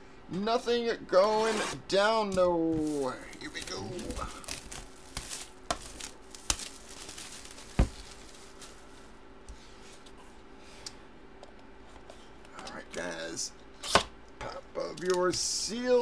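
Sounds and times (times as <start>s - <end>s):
plastic wrap crinkling: 2.8s - 9.2s.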